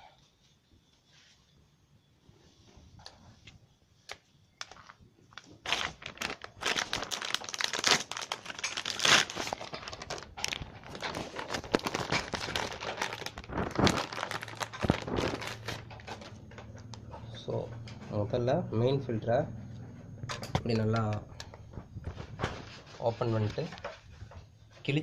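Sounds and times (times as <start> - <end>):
plastic wrapper crinkling: 4.1 - 16.4.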